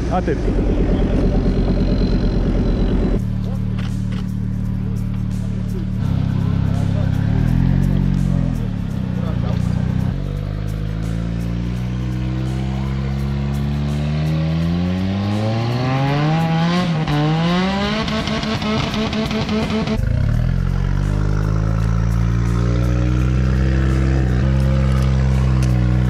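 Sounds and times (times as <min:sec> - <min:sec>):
vehicle engine revving: 0:00.0 - 0:26.0.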